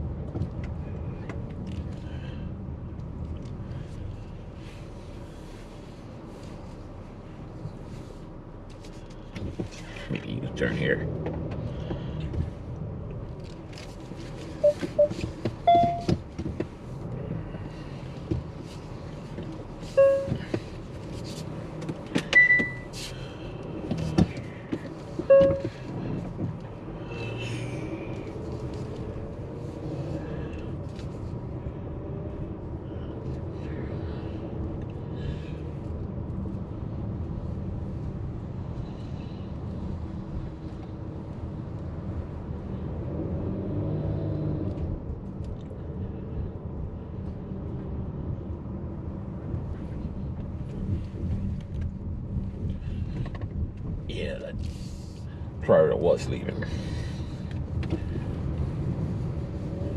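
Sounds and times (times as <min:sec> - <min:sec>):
car road and engine rumble: 0:00.0 - 0:59.9
short beeps: 0:14.6 - 0:16.1, 0:20.0 - 0:20.4, 0:22.4 - 0:22.9, 0:25.3 - 0:25.7.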